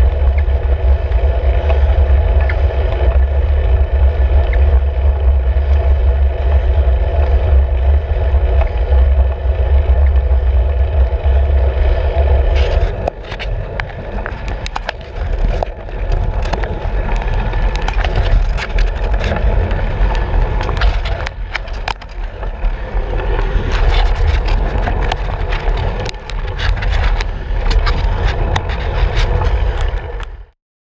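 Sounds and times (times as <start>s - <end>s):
bicycle clicks and rattles: 0.0s - 30.5s
road rumble: 0.0s - 30.5s
wind buffeting: 0.0s - 30.5s.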